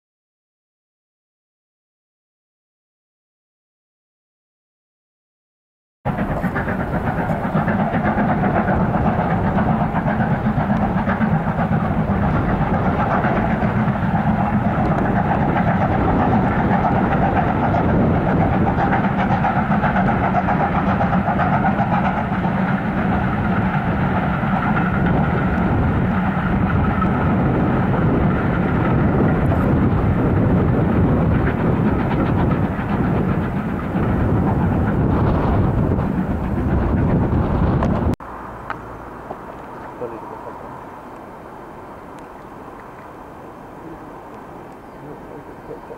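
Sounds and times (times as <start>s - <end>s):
wind noise on microphone: 6.1s - 38.2s
steam locomotive exhaust: 6.1s - 45.9s
train rumble: 6.1s - 45.9s.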